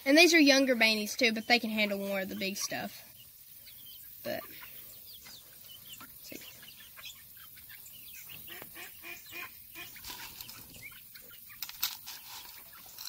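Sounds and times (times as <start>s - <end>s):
chicks calling: 0.0s - 13.0s
ducks quacking: 3.7s - 11.6s.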